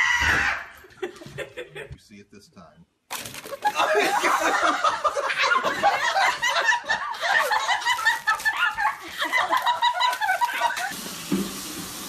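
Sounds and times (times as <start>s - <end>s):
people laughing: 0.7s - 2.0s, 3.4s - 11.0s.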